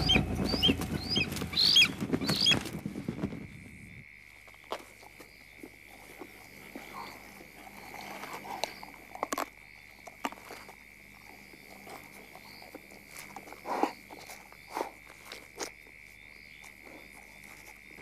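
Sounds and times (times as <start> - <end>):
animal scuffle: 0.0 - 3.7
animal rustling and struggling: 0.0 - 3.8.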